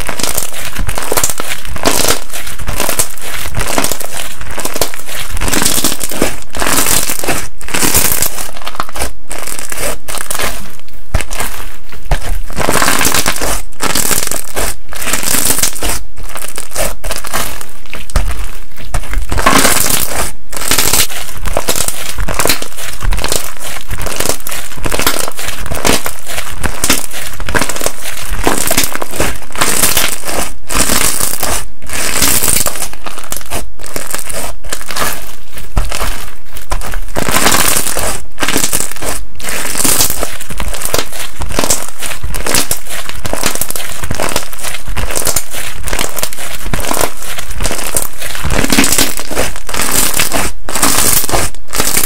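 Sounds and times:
slime crackling when squeezed: 0.0 - 52.0.

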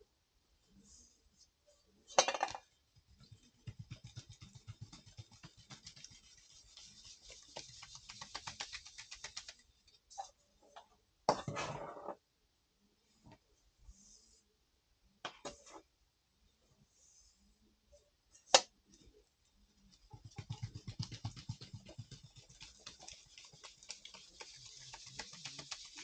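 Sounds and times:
utensil scraping dough: 3.1 - 9.6.

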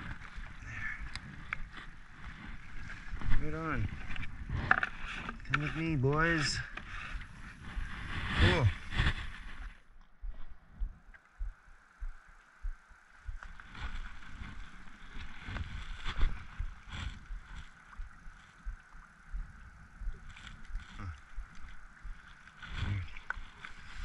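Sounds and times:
wind gusting on microphone: 0.0 - 11.5
small waves lapping on rocks: 13.1 - 24.0.

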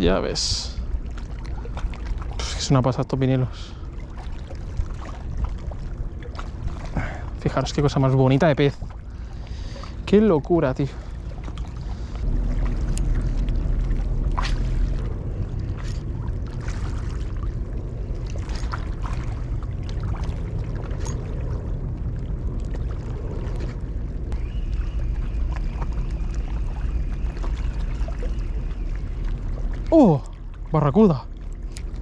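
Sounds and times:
water sloshing against rocks: 0.0 - 32.0
wind rumbling on microphone: 0.0 - 32.0
faint high whine: 23.0 - 31.3.

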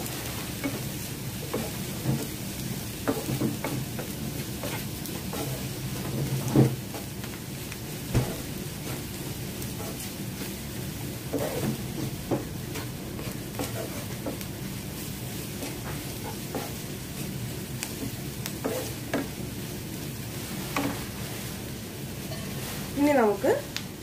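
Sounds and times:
onions sizzling in oil: 0.0 - 24.0
spatula scraping pan: 3.0 - 7.1, 9.6 - 10.6, 11.2 - 17.3, 18.0 - 19.4.

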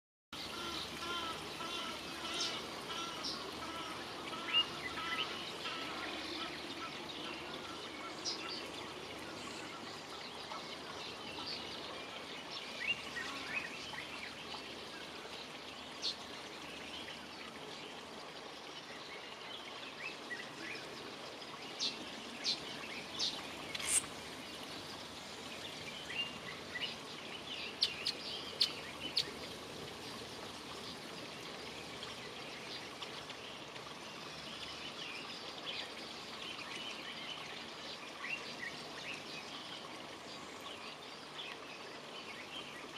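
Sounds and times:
outdoor background hiss: 0.4 - 42.9
small birds chirping: 21.7 - 33.7.

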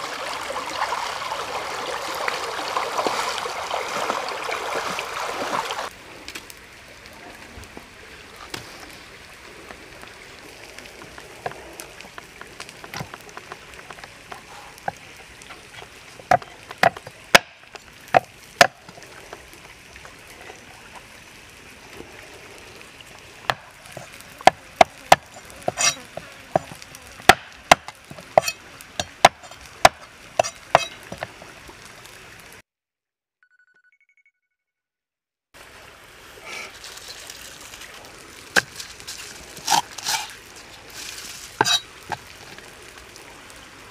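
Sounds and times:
knife chopping on wooden block: 26.6 - 30.9.

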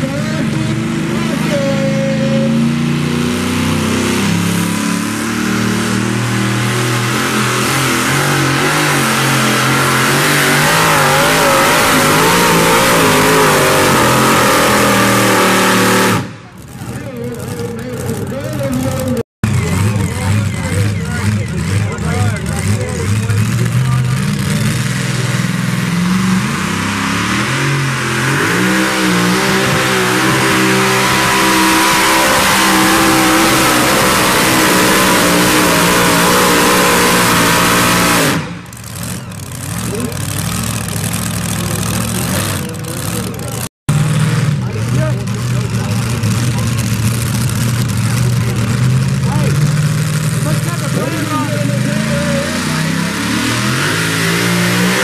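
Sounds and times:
supercharged truck engine running hard: 0.0 - 55.0.

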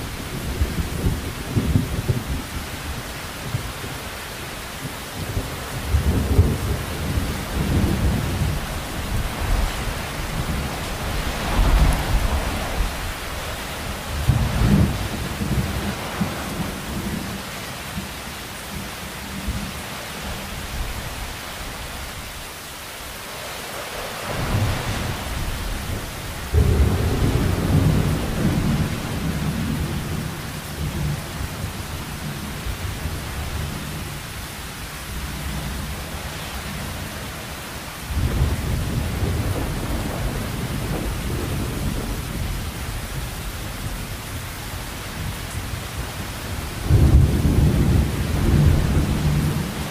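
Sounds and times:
heavy rain hissing: 0.0 - 49.9
deep rolling thunder: 5.2 - 13.4, 14.0 - 17.4, 24.2 - 34.2, 38.1 - 43.2, 46.5 - 49.9.

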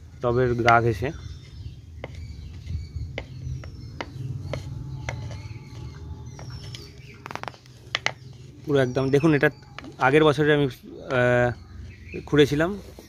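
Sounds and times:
metal tool scraping soil: 4.2 - 10.3.

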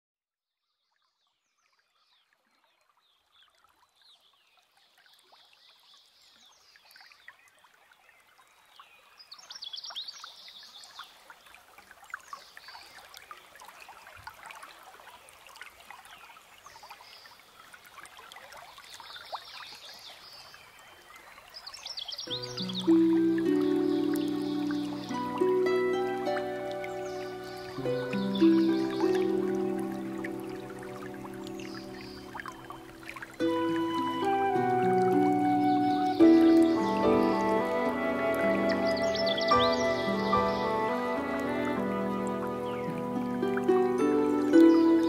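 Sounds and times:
trickle of running water: 1.0 - 45.0.

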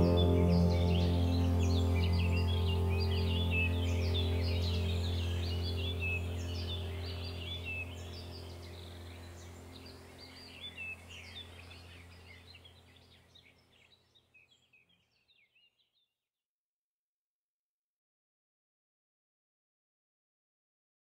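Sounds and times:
low steady hum: 0.0 - 13.6
birds chirping: 0.0 - 15.8.

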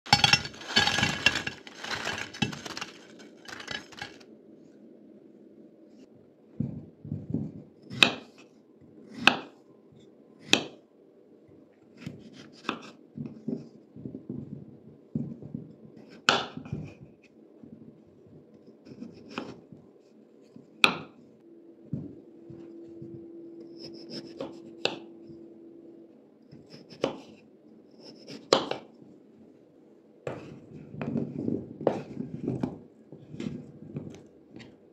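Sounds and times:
crunchy crackling: 0.1 - 4.2.

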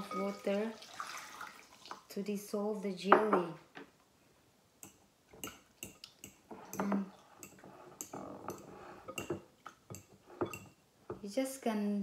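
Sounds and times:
spoon clinking against glass bowl: 0.0 - 0.5, 4.8 - 10.8.

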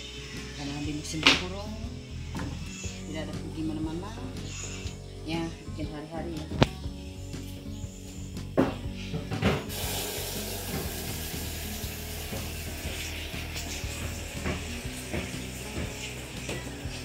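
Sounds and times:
soft background music: 0.0 - 17.0
steaming pot hissing: 9.7 - 17.0.

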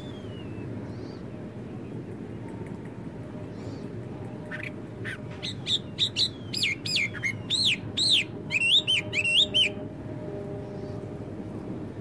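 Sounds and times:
blackbird singing: 0.0 - 1.2, 3.5 - 9.8.

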